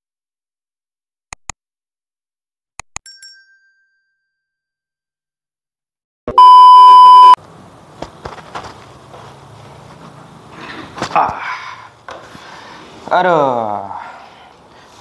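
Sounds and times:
loud steady beep: 6.3 - 7.4.

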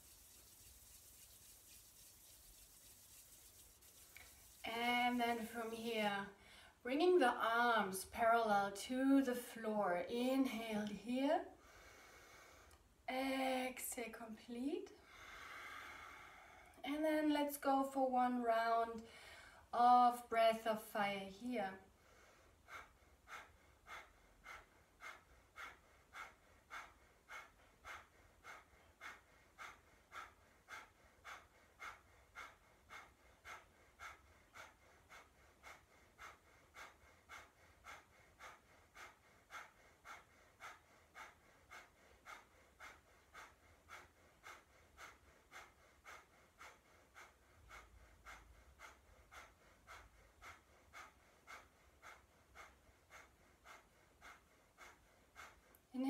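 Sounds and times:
forceful breaths through the nose: 11.6 - 12.8, 15.0 - 16.8, 21.9 - 55.9.

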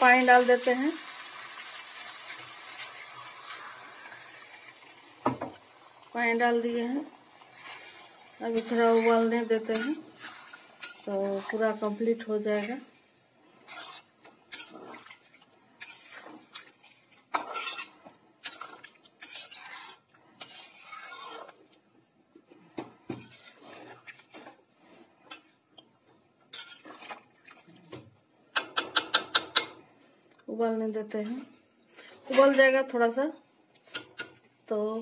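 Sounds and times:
metal ladle scraping a pot: 7.5 - 12.9, 13.6 - 21.8, 23.1 - 25.5, 26.5 - 27.2.

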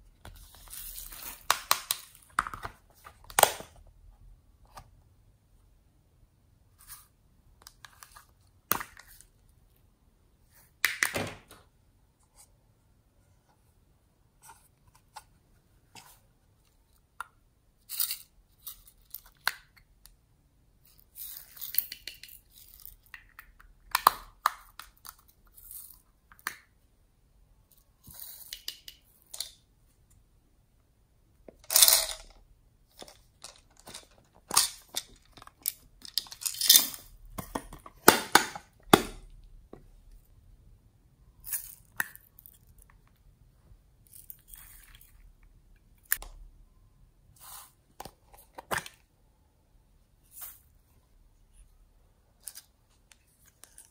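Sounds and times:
beads rattling in container: 31.6 - 32.4.

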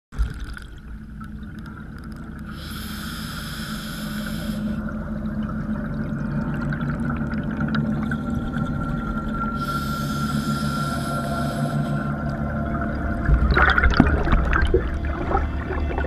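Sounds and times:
water bubbling: 0.1 - 16.0
steady low underwater hum: 0.2 - 16.0
air hiss: 2.5 - 4.8, 9.6 - 12.1.

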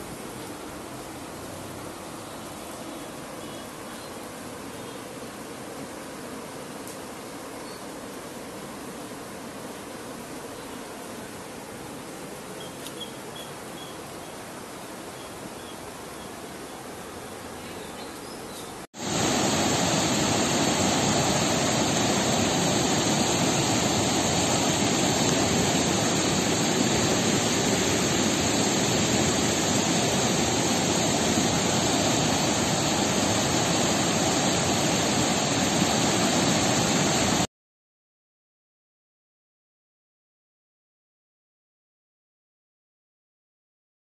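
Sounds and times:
floodwater rushing: 19.0 - 37.5.

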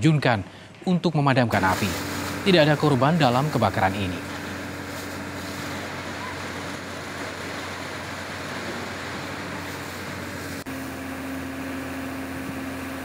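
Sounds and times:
water spraying hiss: 1.5 - 10.8
fire engine motor running: 1.5 - 13.0.

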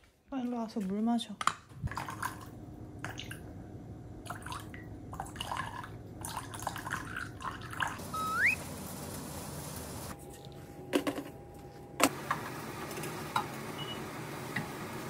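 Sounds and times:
rising whistle-like squeak: 8.1 - 8.6.

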